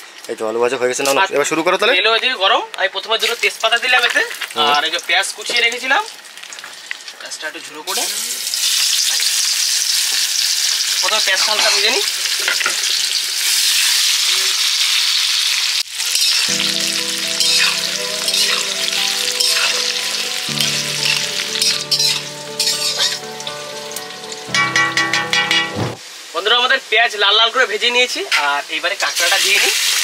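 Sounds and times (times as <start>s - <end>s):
onions sizzling in oil: 3.2s - 25.4s, 26.0s - 30.0s
background music with chords: 16.5s - 26.0s.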